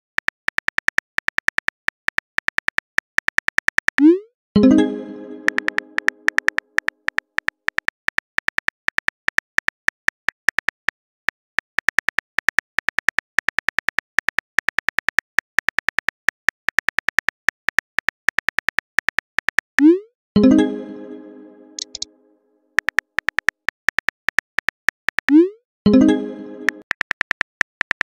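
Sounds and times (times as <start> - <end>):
phone keyboard typing clicks: 5.3 - 10.7, 21.8 - 22.1, 26.6 - 28.0.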